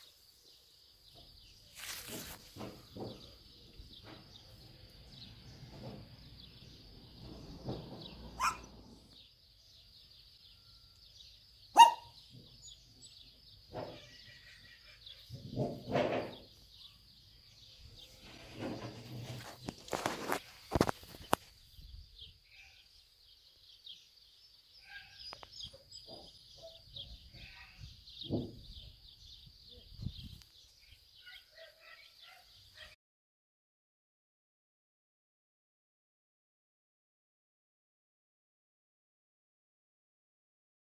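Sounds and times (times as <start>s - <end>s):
rustling in grass: 1.6s - 2.9s, 18.0s - 21.7s.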